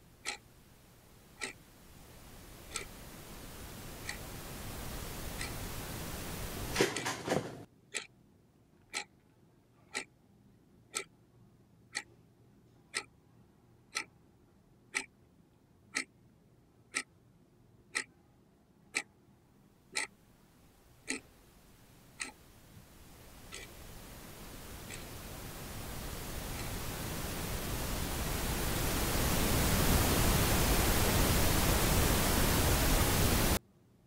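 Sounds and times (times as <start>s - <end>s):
clock ticking: 0.0s - 0.5s, 1.2s - 7.3s, 7.9s - 8.2s, 8.8s - 9.2s, 9.8s - 10.2s, 10.8s - 11.2s, 11.8s - 13.2s, 13.8s - 14.2s, 14.9s - 15.2s, 15.8s - 17.2s, 17.9s - 18.2s, 18.8s - 19.2s, 19.9s - 20.2s, 21.0s - 33.6s.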